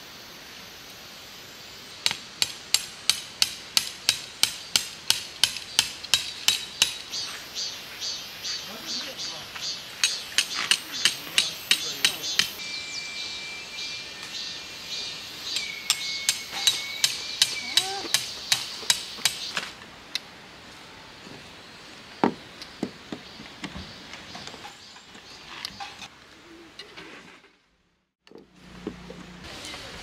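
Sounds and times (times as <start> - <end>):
hammer striking tent pegs: 10.0 - 12.6.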